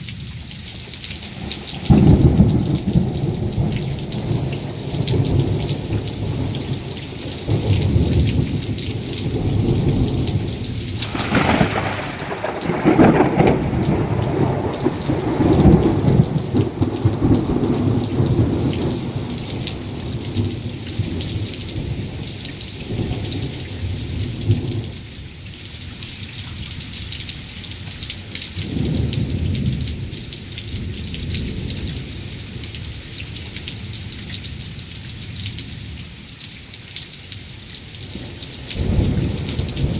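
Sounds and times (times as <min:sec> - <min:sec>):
heavy rain hissing: 0:00.0 - 0:26.0
rolling thunder: 0:01.5 - 0:24.9, 0:38.2 - 0:39.9.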